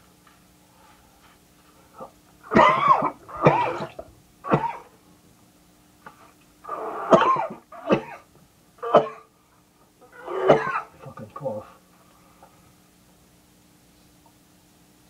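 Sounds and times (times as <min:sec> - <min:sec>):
man coughing: 0:02.5 - 0:04.9, 0:07.0 - 0:09.3, 0:10.2 - 0:11.0.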